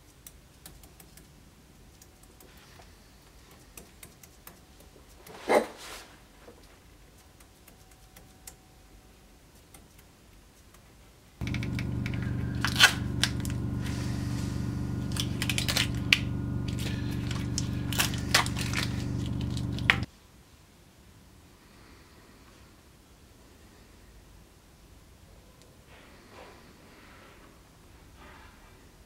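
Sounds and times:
steady low hum: 0:11.4 - 0:20.1
tape crinkling and tearing: 0:11.4 - 0:20.1.

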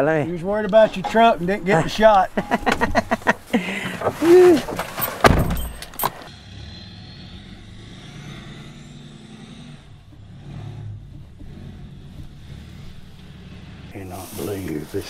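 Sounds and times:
engine idling: 0:00.0 - 0:15.0
heavy thump: 0:02.4 - 0:06.1
vehicle door clicks: 0:02.4 - 0:06.3.

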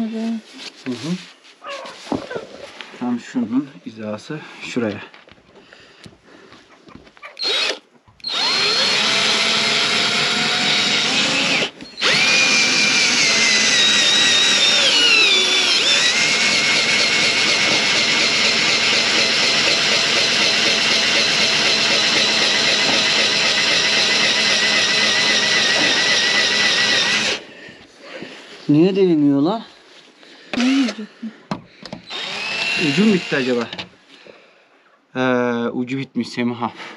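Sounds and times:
cordless drill running: 0:07.4 - 0:27.5, 0:30.5 - 0:31.0, 0:32.0 - 0:33.8.

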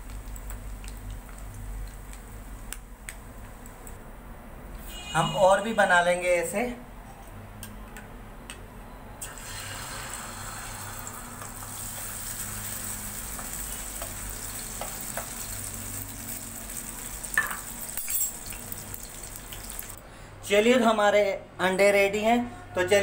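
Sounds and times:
egg sizzling in hot oil: 0:00.0 - 0:03.6, 0:09.2 - 0:20.0.

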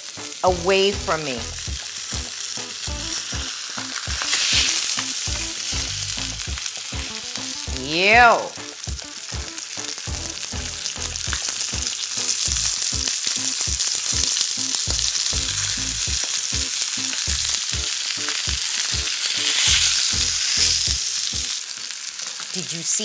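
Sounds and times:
fish sizzling in a skillet: 0:00.0 - 0:23.0.

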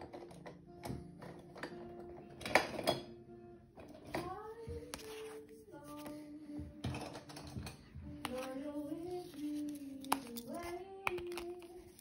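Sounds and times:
person singing slow tune: 0:03.2 - 0:12.0.

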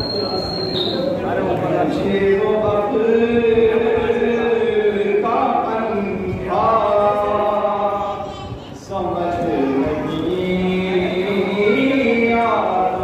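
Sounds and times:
man chanting into a microphone: 0:00.0 - 0:13.0.

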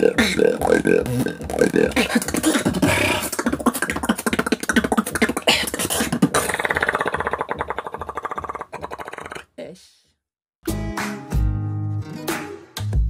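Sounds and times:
person beatboxing: 0:00.0 - 0:09.5.

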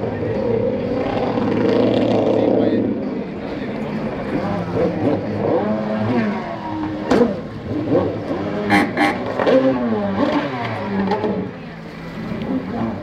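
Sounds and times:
jet ski engine revving: 0:03.5 - 0:13.0.

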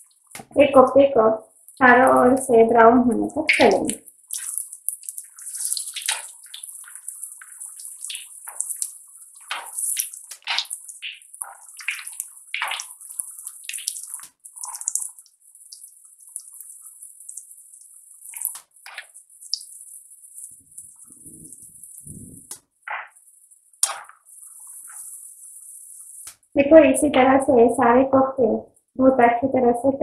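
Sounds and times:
food deep-frying in oil: 0:03.2 - 0:26.6
oil crackling and popping: 0:03.5 - 0:26.6.

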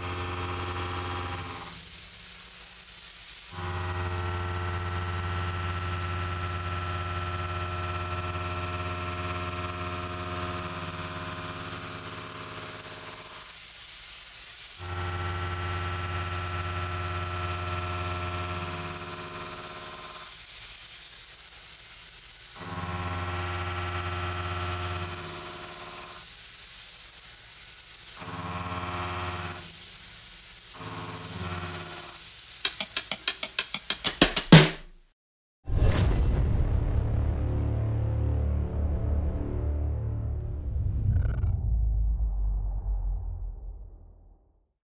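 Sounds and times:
milling machine cutting steel: 0:00.0 - 0:34.5.

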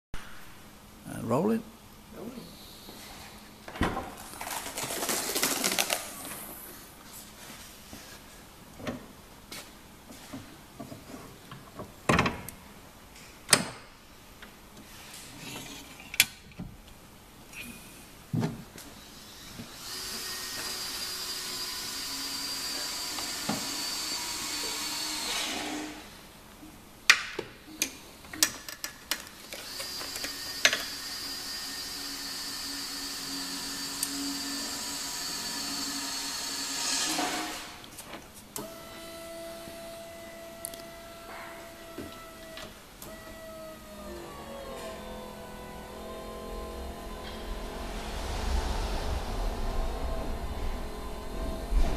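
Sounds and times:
electric hoist motor whining: 0:29.5 - 0:36.8, 0:38.6 - 0:51.9.

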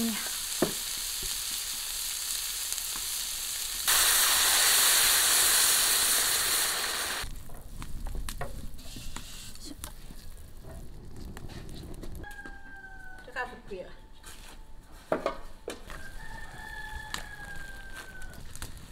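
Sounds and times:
food sizzling in a wok: 0:00.0 - 0:07.3, 0:16.0 - 0:18.9
loud hiss of steam: 0:00.0 - 0:07.3
water poured into wok: 0:03.9 - 0:07.3.

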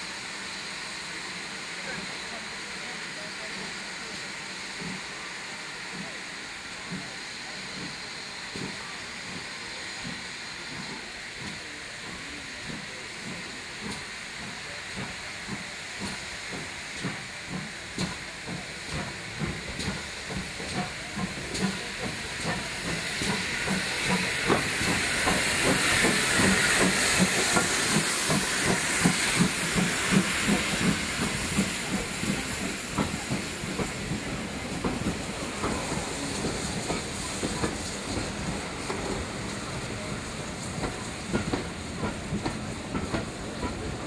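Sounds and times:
steam hissing: 0:00.0 - 0:44.0
steam locomotive chuffing: 0:00.0 - 0:44.0.

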